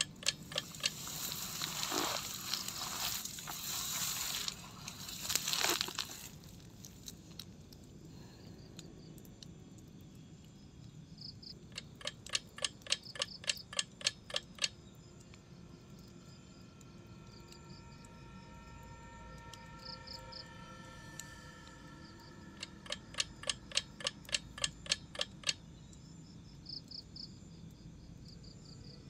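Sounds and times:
sharp clicks: 0:00.0 - 0:02.8, 0:11.6 - 0:15.4, 0:22.6 - 0:25.6
faint insect chirps: 0:00.0 - 0:29.0
tent fabric rustling: 0:00.7 - 0:06.6.

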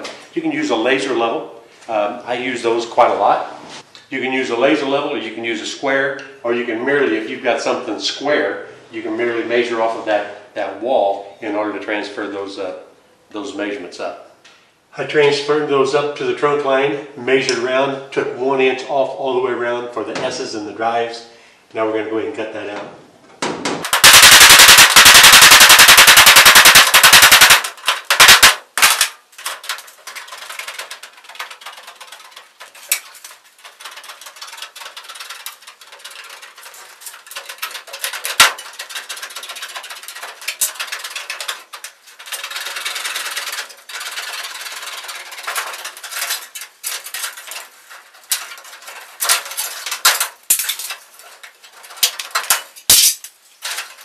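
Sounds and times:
hammer striking sheet metal: 0:23.4 - 0:42.8
snips cutting sheet metal: 0:23.8 - 0:47.7, 0:48.3 - 0:54.0
metal scraping: 0:24.0 - 0:54.0.

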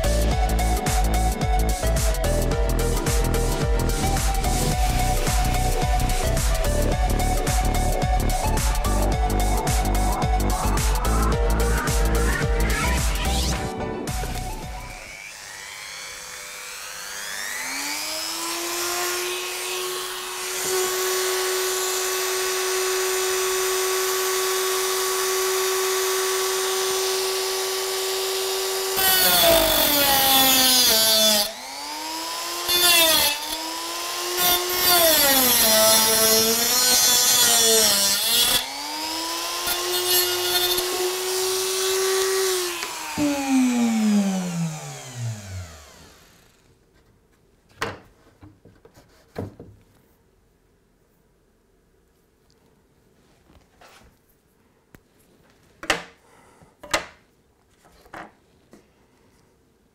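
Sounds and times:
cut-off disc grinding metal rail: 0:02.9 - 0:23.0, 0:25.8 - 0:46.6
rotary tool whining: 0:03.8 - 0:46.8.

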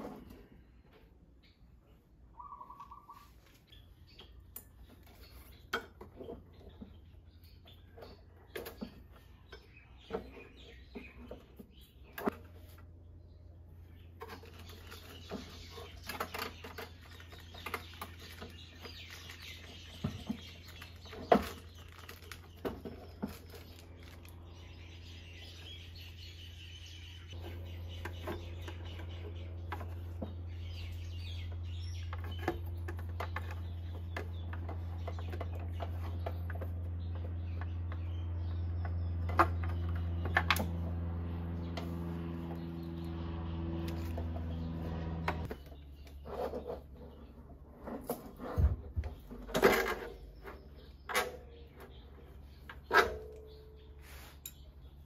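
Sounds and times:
birds chirping: 0:00.0 - 0:55.0
clicks and knocks handling scooter: 0:45.2 - 0:53.6.

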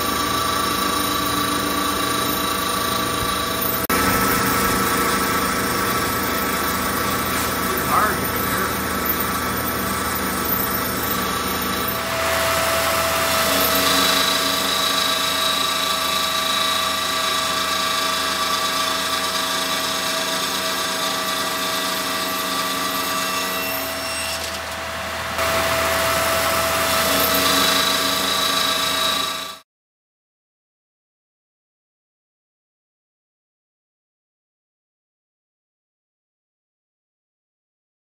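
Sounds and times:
abrasive saw grinding metal: 0:00.0 - 0:29.6.

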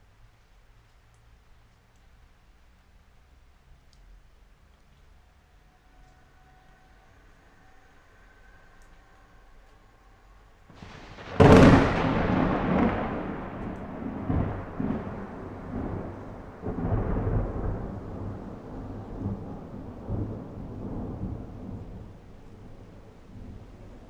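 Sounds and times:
thunderclap crack: 0:10.8 - 0:21.8
rolling thunder rumble: 0:10.8 - 0:24.0.

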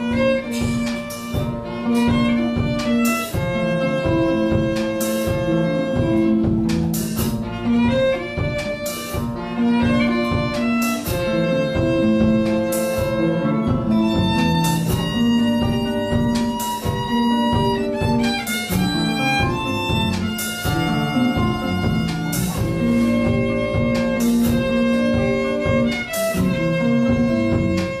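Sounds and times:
drum kit: 0:00.0 - 0:28.0
electric bass: 0:00.0 - 0:28.0
violin long held notes: 0:07.3 - 0:28.0.

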